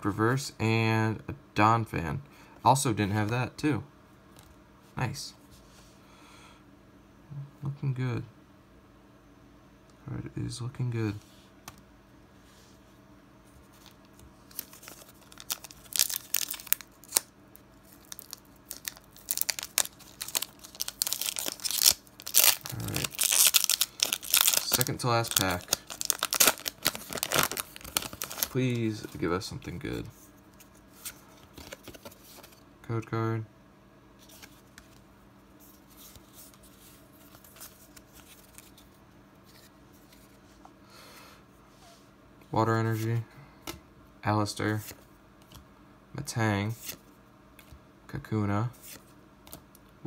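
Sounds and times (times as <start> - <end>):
low electrical hum: 0.0 - 50.0
cards rustling and clicking: 13.7 - 29.2, 30.6 - 32.6, 34.2 - 35.0, 35.7 - 40.4
foil wrapper crinkling: 13.8 - 28.8.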